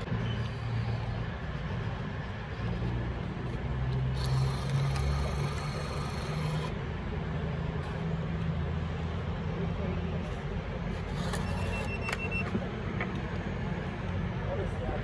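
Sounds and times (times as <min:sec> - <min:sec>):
high hissing whir: 0:04.1 - 0:06.7.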